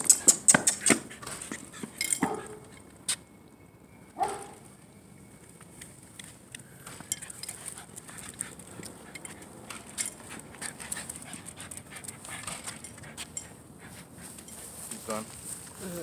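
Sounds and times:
dog panting: 0.0s - 2.8s, 7.1s - 14.8s
short clicks and scuffs: 0.0s - 3.2s.

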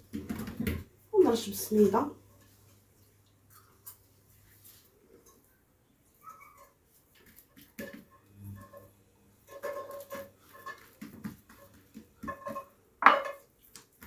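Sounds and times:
quiet rustling: 1.7s - 8.9s.

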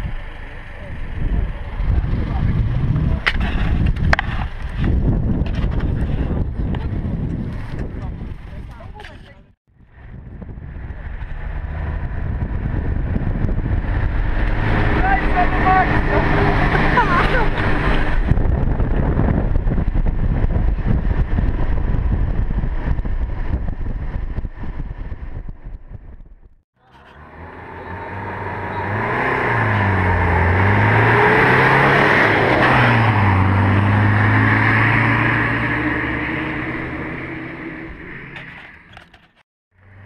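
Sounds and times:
wind noise: 0.0s - 26.6s
off-road vehicle engine: 0.0s - 40.0s.

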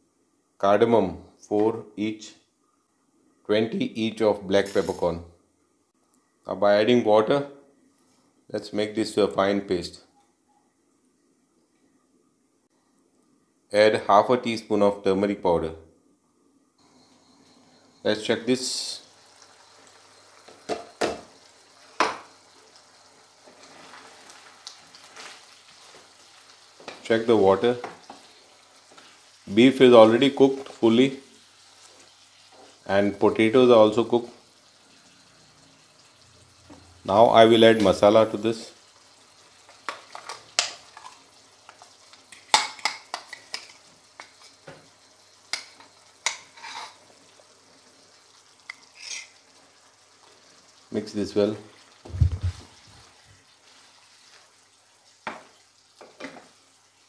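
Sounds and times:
spoon scraping: 4.6s - 5.2s, 46.2s - 47.0s, 48.7s - 49.4s
spatula stirring curry sizzling: 19.1s - 27.1s, 27.8s - 32.9s, 38.8s - 50.9s, 51.7s - 57.0s.

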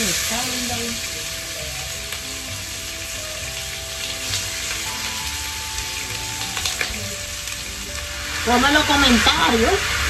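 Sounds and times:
meat sizzling in a frying pan: 0.0s - 10.0s.

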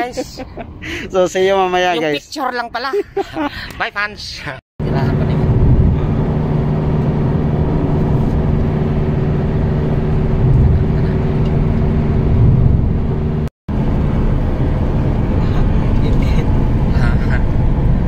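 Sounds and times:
car engine hum: 4.8s - 18.0s
tyre and road noise: 4.8s - 18.0s.

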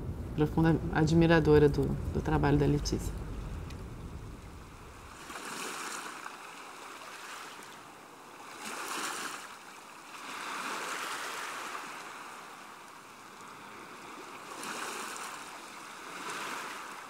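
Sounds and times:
sea waves washing in: 0.0s - 17.0s.

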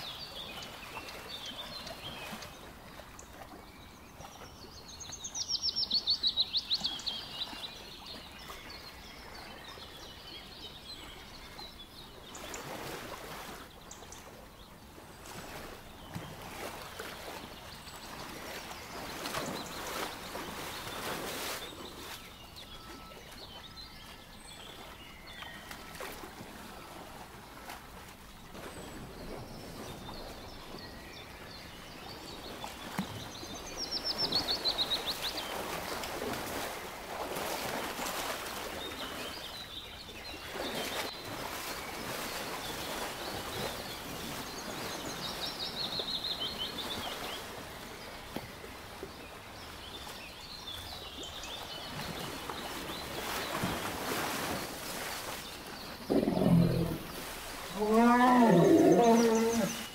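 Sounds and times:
wild birds chirping: 0.0s - 59.9s.

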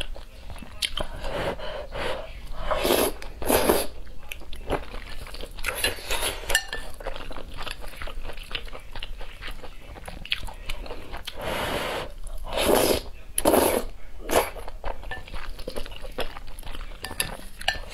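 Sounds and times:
slurping noodles: 1.2s - 4.0s, 11.3s - 14.6s
chewing noodles: 2.6s - 11.5s, 12.2s - 17.9s.

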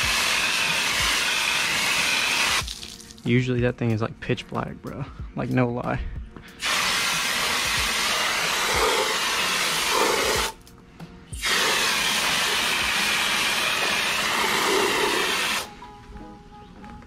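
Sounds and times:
hose water jet spraying: 0.0s - 3.2s, 6.6s - 10.6s, 11.4s - 15.7s.

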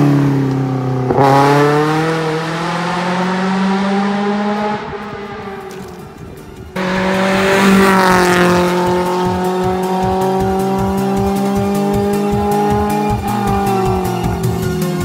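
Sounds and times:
car engine high note: 0.0s - 15.0s
fast electronic music beat: 6.6s - 15.0s.

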